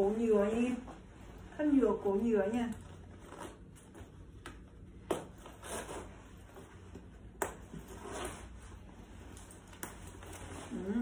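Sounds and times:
jacket fabric rustling: 5.3 - 11.0.

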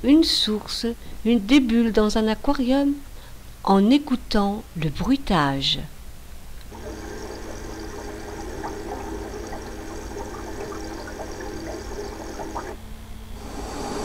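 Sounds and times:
steady hum: 6.2 - 14.0
water running and bubbling: 6.7 - 12.8.

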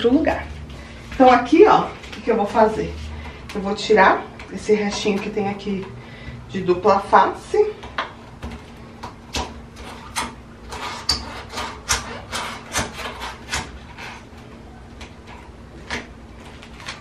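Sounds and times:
fingers scraping tape off countertop: 9.8 - 14.3.

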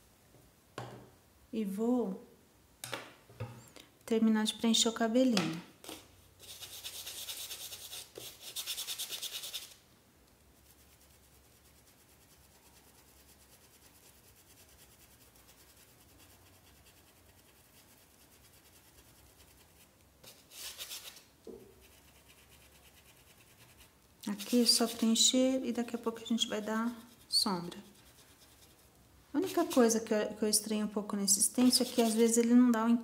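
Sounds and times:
paintbrush scratchy rubbing on cloth: 5.8 - 9.8, 10.6 - 30.1, 31.4 - 32.4.

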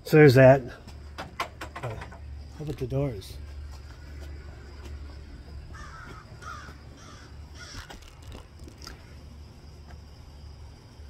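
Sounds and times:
steady low hum: 0.0 - 11.0
crow cawing: 5.6 - 8.2.

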